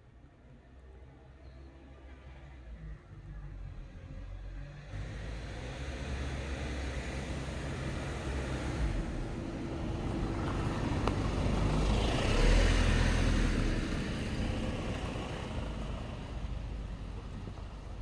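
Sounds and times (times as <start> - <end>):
vehicle passing: 4.6 - 16.5.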